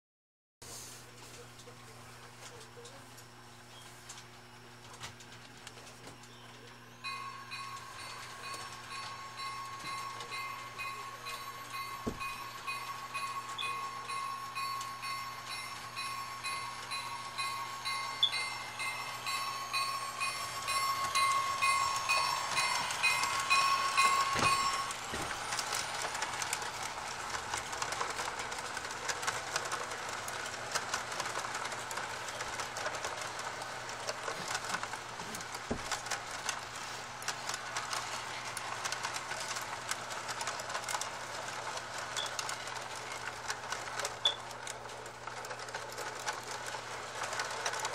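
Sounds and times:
model train whine with ticking: 0:01.3 - 0:47.9
wheels clattering over track: 0:20.2 - 0:36.6.

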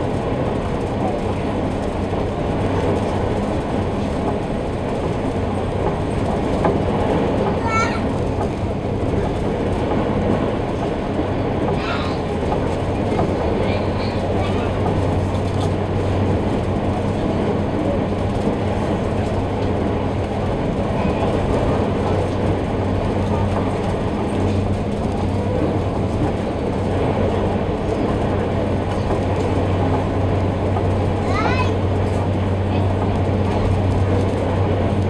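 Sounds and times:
ferry engine drone: 0:00.0 - 0:35.0
water rushing against hull: 0:00.0 - 0:35.0.

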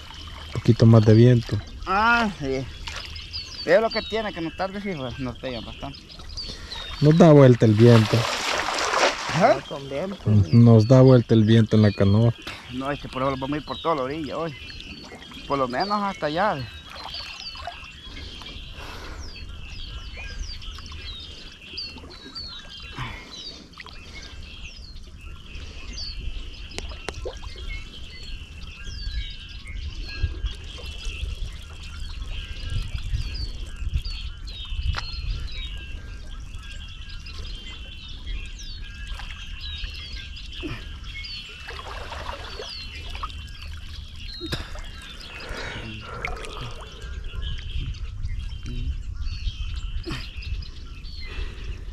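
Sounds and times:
water trickling: 0:00.0 - 0:18.4, 0:40.6 - 0:47.7
birds chirping: 0:00.0 - 0:51.9
wind rumble on microphone: 0:16.6 - 0:23.2, 0:24.0 - 0:51.9.

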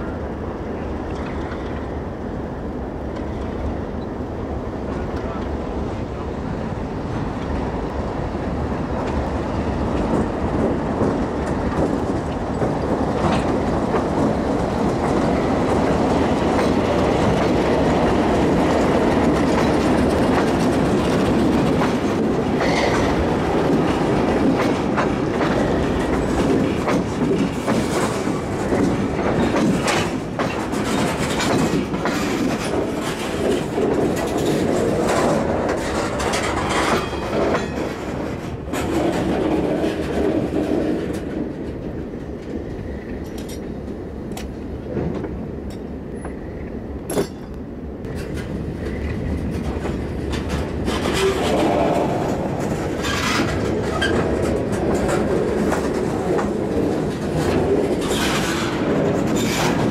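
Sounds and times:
diesel locomotive engines: 0:00.0 - 0:59.9
wheels clicking over rail joints: 0:09.8 - 0:46.4, 0:47.0 - 0:59.9.

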